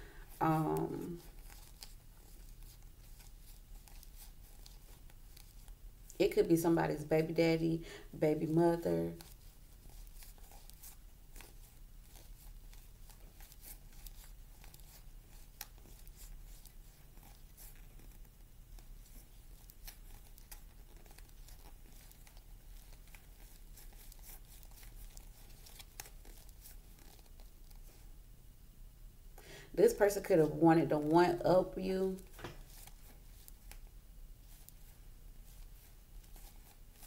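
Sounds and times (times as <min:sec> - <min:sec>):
cards being shuffled: 0:00.8 - 0:05.8, 0:09.1 - 0:28.0, 0:32.2 - 0:37.0.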